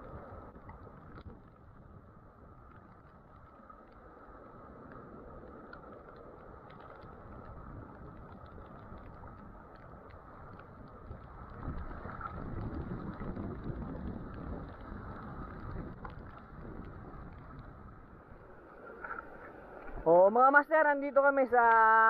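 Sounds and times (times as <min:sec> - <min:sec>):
wind buffeting microphone: 0:06.4 - 0:20.3.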